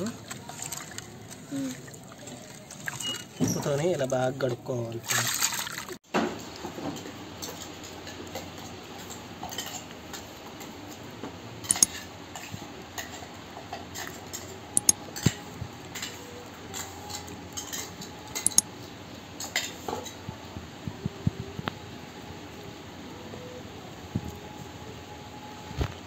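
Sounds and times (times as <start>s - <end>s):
metal spoon scraping steel jar: 11.7s - 11.9s, 18.4s - 18.6s
sharp metallic clinks: 11.7s - 11.9s.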